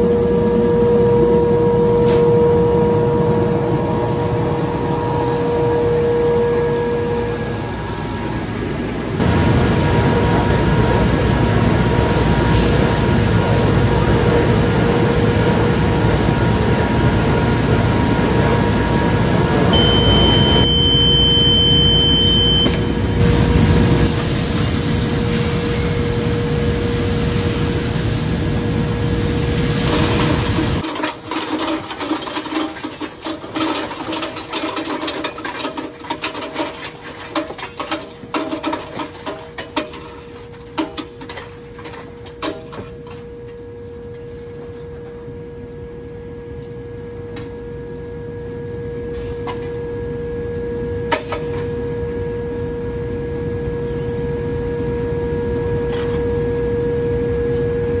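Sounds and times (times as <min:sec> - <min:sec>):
steady high beep: 0:19.8 - 0:22.7
steel springs clattering: 0:30.2 - 0:45.0.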